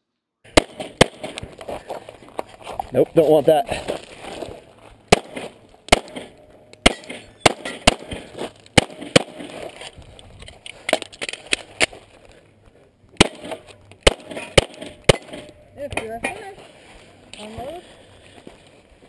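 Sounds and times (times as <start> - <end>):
pistol shots: 0.5 - 1.4, 5.1 - 9.6, 13.2 - 15.6.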